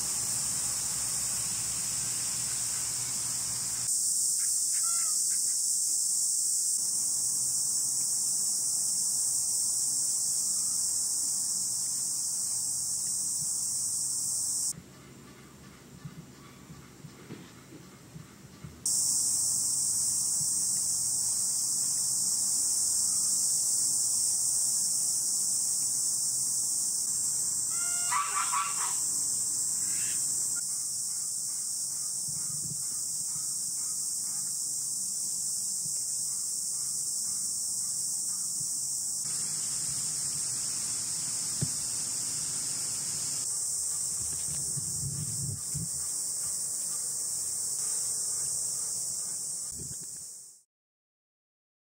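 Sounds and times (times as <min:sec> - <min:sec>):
insects droning: 0:00.0 - 0:14.8, 0:18.8 - 0:50.6
bird call: 0:27.7 - 0:29.0.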